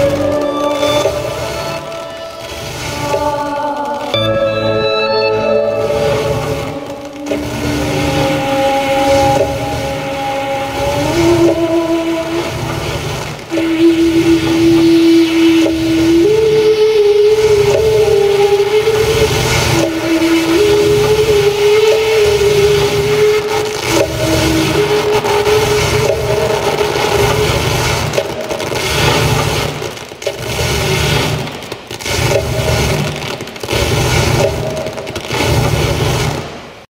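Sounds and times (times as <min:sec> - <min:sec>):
held drone tones: 0:00.0 - 0:29.8
low rumbling drone: 0:00.0 - 0:29.9
scraping electronic hiss: 0:00.0 - 0:36.9
faint held tones: 0:04.1 - 0:07.3.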